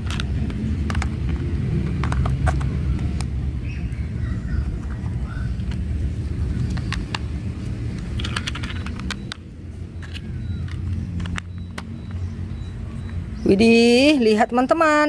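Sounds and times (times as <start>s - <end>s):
plastic parts clicking: 0.0s - 3.3s, 7.9s - 12.2s.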